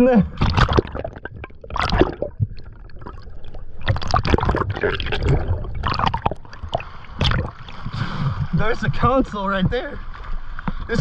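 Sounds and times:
water gurgling and sloshing: 0.0s - 11.0s
water splash: 0.4s - 8.7s.

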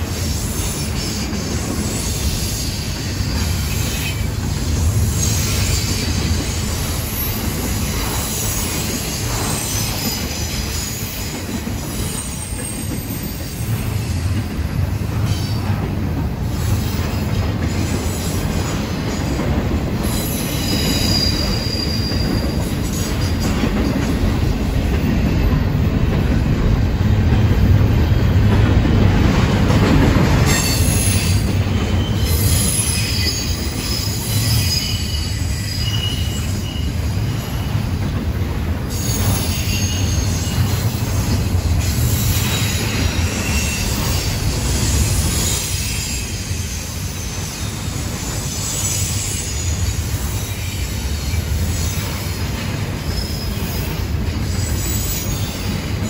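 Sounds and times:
train wheels rumbling on rail: 0.0s - 56.0s
high wheel squeals: 20.0s - 23.5s, 30.5s - 37.9s, 38.9s - 41.1s, 41.8s - 52.2s, 53.0s - 55.8s.

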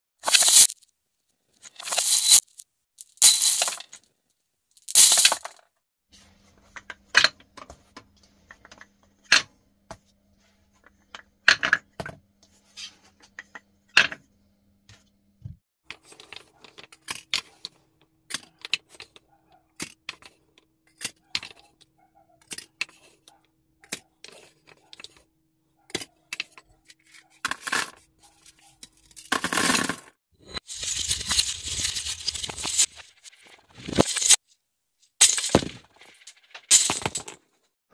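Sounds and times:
glass gems against stone mortar: 0.2s - 0.8s, 1.6s - 4.0s, 4.8s - 5.5s, 30.4s - 34.4s
small objects dropped into plastic cups: 0.2s - 0.8s, 1.6s - 4.0s, 4.8s - 5.6s, 29.3s - 34.4s, 35.2s - 37.4s.

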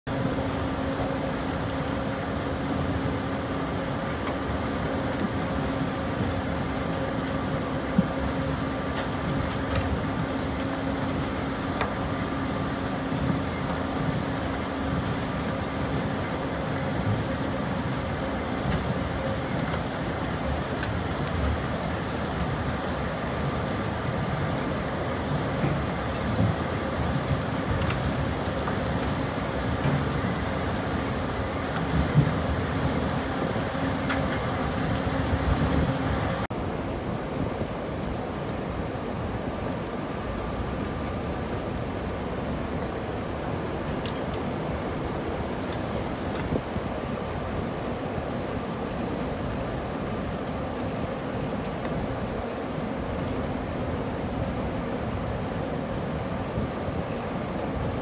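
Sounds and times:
excavator mechanical noise: 0.1s - 36.5s.

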